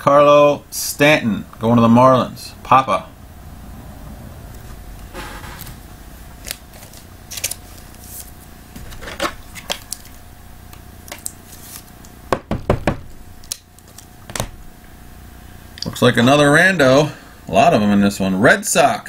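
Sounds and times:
trading cards clicking and scraping: 6.4s - 10.2s, 11.1s - 12.1s.

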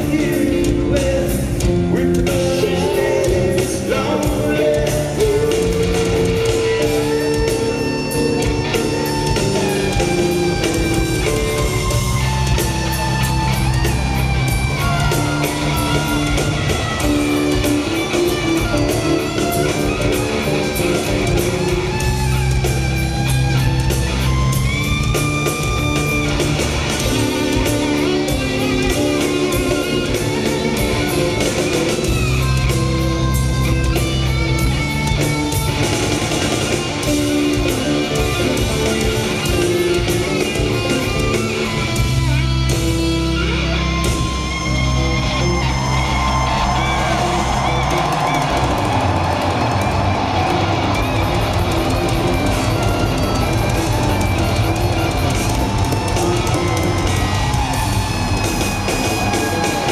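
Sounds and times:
bass: 0.0s - 59.9s
drums: 0.0s - 59.9s
electric guitar: 0.0s - 59.9s.

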